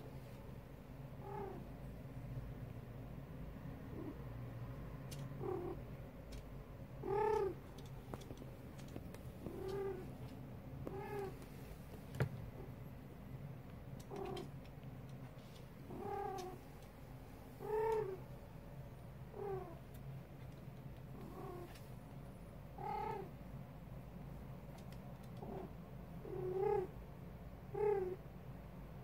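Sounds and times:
cat calling: 1.2s - 1.6s, 7.0s - 7.6s, 9.4s - 10.2s, 17.6s - 18.2s
cat purring: 1.2s - 1.7s, 3.7s - 13.0s, 13.6s - 18.5s, 19.2s - 22.1s, 22.7s - 23.4s, 24.6s - 27.0s, 27.7s - 28.2s.

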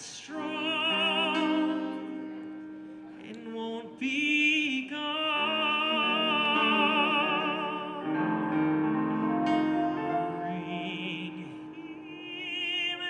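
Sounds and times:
operatic singing: 0.0s - 2.5s, 3.1s - 13.0s
sustained accompaniment: 5.4s - 13.0s.

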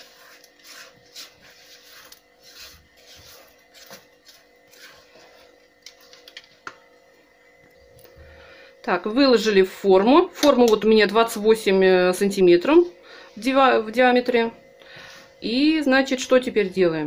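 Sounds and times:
spatula scraping mixing bowl: 0.0s - 6.6s.

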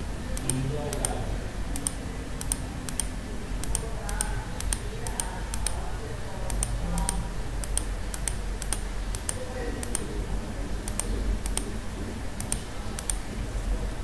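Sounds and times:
low steady hum: 0.0s - 14.0s
mouse button clicking: 0.4s - 1.2s, 1.8s - 5.8s, 6.5s - 10.1s, 10.9s - 11.7s, 12.4s - 13.2s.

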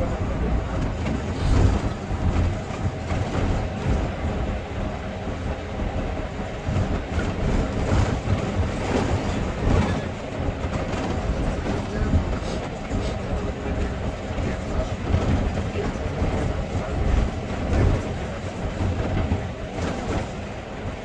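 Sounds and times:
vehicle rumble: 0.0s - 21.0s
faint voices: 11.2s - 20.2s.

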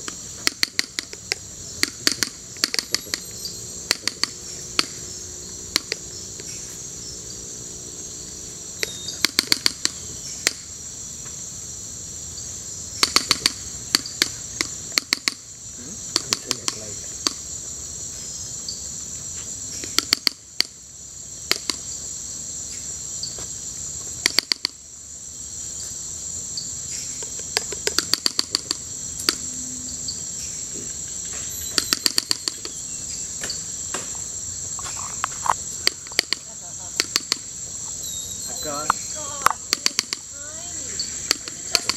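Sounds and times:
insects droning: 0.0s - 41.9s
sharp rapid clicks: 0.4s - 3.2s, 3.9s - 5.0s, 8.8s - 10.6s, 13.0s - 15.4s, 16.1s - 17.4s, 27.6s - 29.4s, 31.7s - 32.7s, 37.0s - 37.5s, 38.8s - 40.3s.

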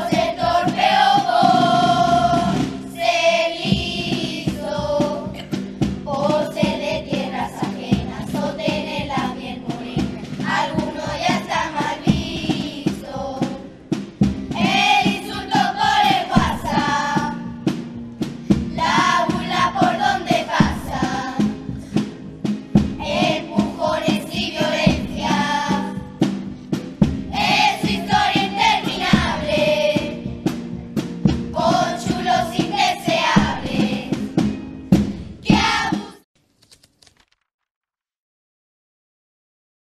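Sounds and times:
children's choir singing: 0.0s - 13.7s, 14.5s - 17.8s, 18.5s - 22.1s, 23.0s - 26.4s, 27.3s - 30.3s, 31.5s - 34.4s, 35.4s - 36.2s
instrumental accompaniment: 0.0s - 36.2s.

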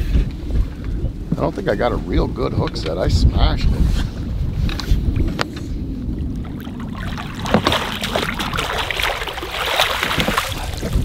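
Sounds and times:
low rumble: 0.0s - 11.0s
fish splashing at water surface: 6.3s - 11.0s.

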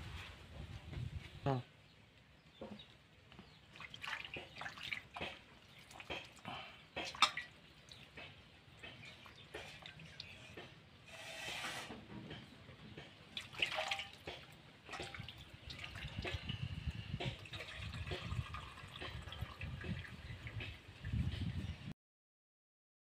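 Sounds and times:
water splashing into steel bowl: 3.7s - 8.2s, 13.3s - 20.7s.

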